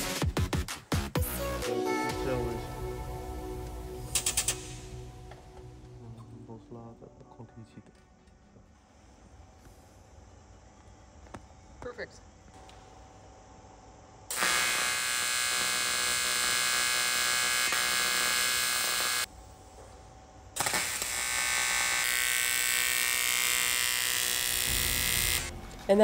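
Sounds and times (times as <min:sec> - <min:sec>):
welding arc buzzing: 0:02.3 - 0:05.8, 0:14.3 - 0:19.5, 0:20.4 - 0:26.0.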